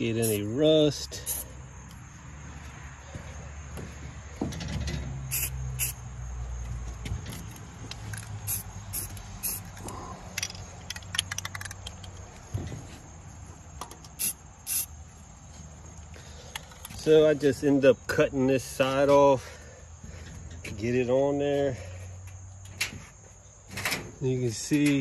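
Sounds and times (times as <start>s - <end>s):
aerosol spray can hissing: 5.3s - 6.0s, 8.4s - 9.7s, 14.2s - 14.9s.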